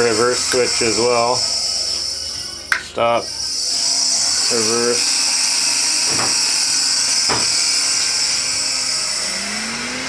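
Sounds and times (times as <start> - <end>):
grinder electric motor hum: 0.0 - 10.0.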